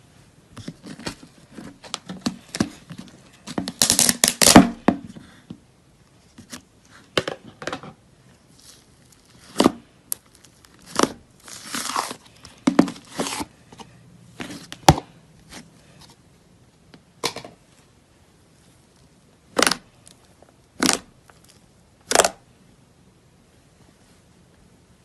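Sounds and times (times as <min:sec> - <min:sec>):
slime squishing by hand: 0:00.6 - 0:05.4, 0:08.3 - 0:16.0, 0:18.6 - 0:22.4.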